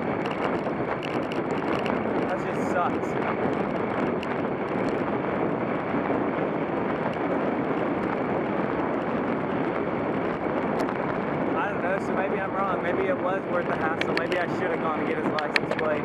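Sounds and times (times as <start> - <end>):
wind rushing over microphone: 0.0 - 16.0.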